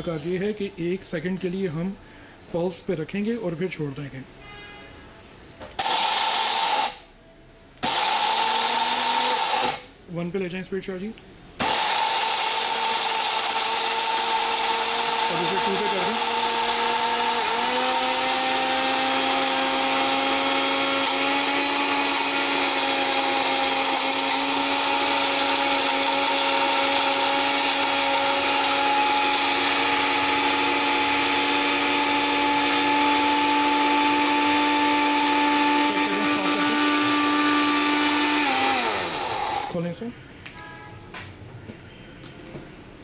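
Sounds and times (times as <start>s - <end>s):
electric spice grinder running: 5.8s - 7.0s, 7.8s - 9.9s, 11.6s - 39.8s.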